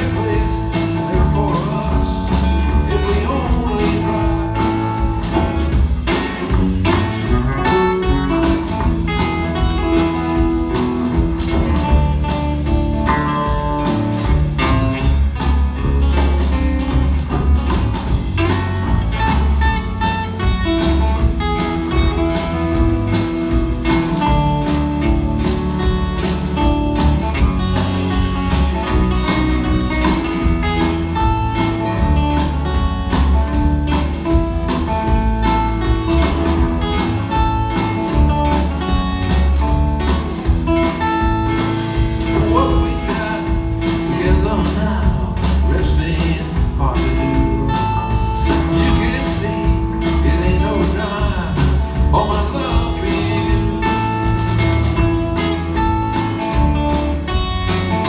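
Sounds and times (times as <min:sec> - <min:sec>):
amplified guitar: 0:00.0 - 0:58.0
blues-rock band playing: 0:00.0 - 0:58.0
drum-kit beat: 0:00.0 - 0:58.0
electric bass: 0:00.0 - 0:58.0.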